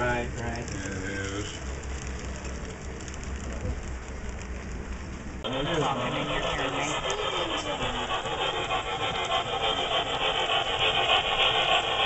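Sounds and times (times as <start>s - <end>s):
model train rolling on track: 0.0s - 12.0s
faint regular ticks: 0.3s - 5.1s.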